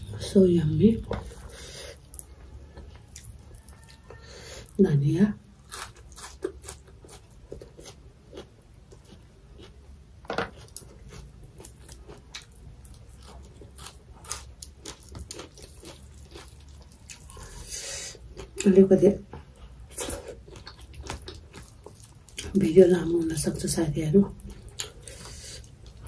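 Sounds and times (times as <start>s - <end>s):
chewing crunchy leaves: 5.6s - 9.8s, 10.5s - 17.6s, 19.9s - 26.0s.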